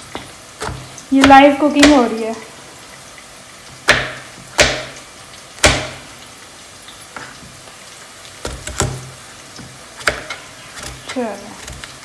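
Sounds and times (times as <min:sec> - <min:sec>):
knife chopping on cutting board: 0:00.1 - 0:02.0, 0:03.8 - 0:05.0, 0:05.6 - 0:06.0, 0:08.4 - 0:12.0.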